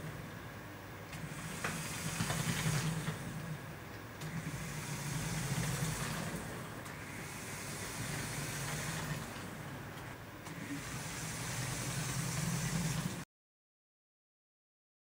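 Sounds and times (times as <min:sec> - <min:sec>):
fan blades hissing: 0:00.0 - 0:13.2
electric motor and gears whirring: 0:01.1 - 0:03.6, 0:04.2 - 0:13.2.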